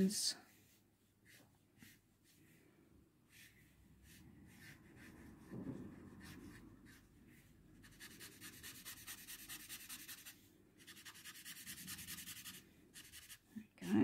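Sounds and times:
marker strokes on paper: 0.0s - 2.6s, 3.3s - 13.5s
marker scribbling: 1.2s - 2.5s, 3.3s - 13.5s
soft low thump: 5.4s - 6.1s.

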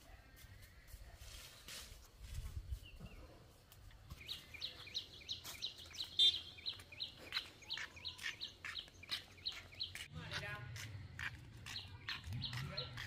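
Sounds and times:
bird chirping: 2.7s - 13.0s.

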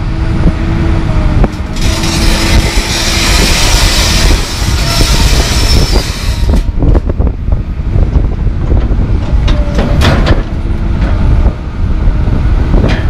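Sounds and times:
diesel engine rumbling: 0.0s - 13.0s
metal knocks and clanks: 8.7s - 11.4s, 12.8s - 13.0s.

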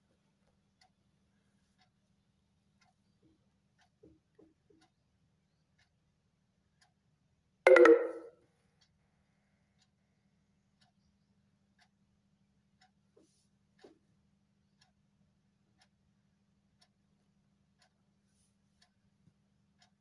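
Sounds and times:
faint even ticking: 7.7s - 8.3s
short pitched tone: 7.7s - 8.3s.

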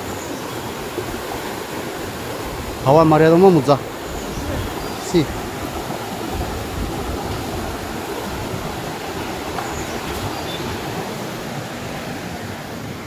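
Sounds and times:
fast river water rushing: 0.0s - 13.0s.

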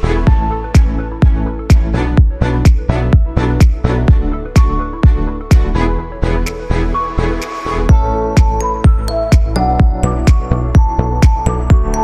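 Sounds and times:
held chords: 7.9s - 12.0s.

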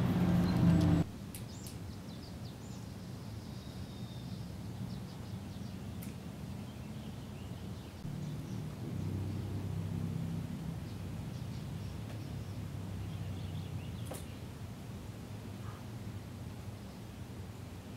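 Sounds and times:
small birds chirping: 0.0s - 14.8s, 15.4s - 17.9s
low hum: 8.0s - 17.9s.

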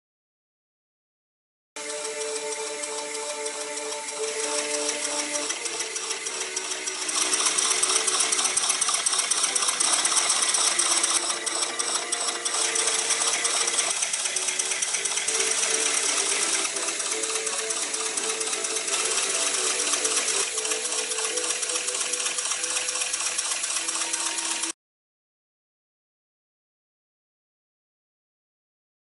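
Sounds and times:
hissing steam exhaust: 1.8s - 24.7s
steam engine clattering: 1.8s - 24.7s.

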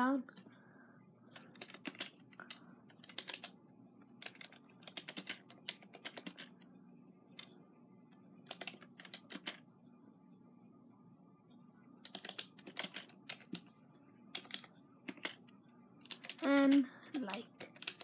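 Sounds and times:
keyboard typing clicks: 1.4s - 3.6s, 4.2s - 6.5s, 8.4s - 9.6s, 12.0s - 13.7s, 14.3s - 18.0s.

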